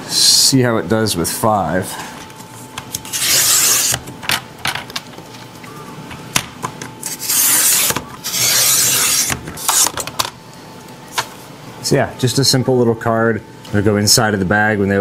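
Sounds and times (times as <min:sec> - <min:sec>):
paper trimmer blade cutting card: 0:02.9 - 0:04.0, 0:07.0 - 0:10.0.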